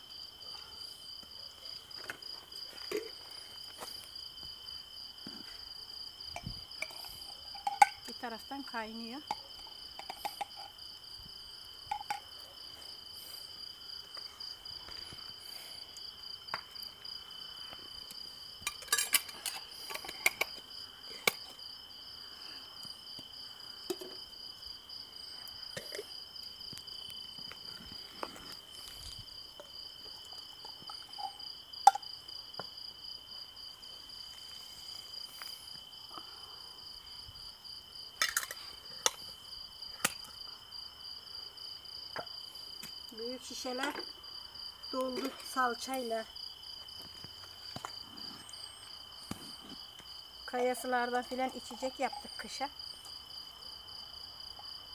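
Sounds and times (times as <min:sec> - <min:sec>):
crickets trilling: 0:00.0 - 0:54.9
glass bottles and lids clinking: 0:06.4 - 0:08.1, 0:18.7 - 0:19.6.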